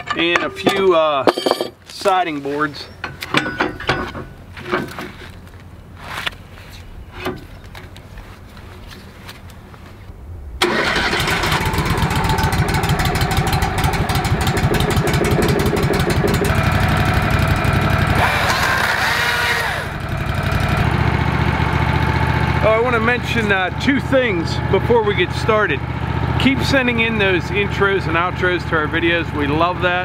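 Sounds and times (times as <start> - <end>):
sawmill engine running: 10.6 - 30.0.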